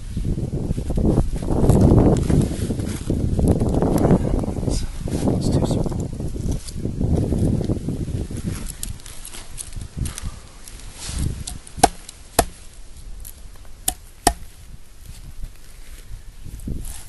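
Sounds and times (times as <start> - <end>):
wood scraping and handling: 8.4 - 15.2
axe chopping wood: 11.4 - 12.7, 13.8 - 14.6.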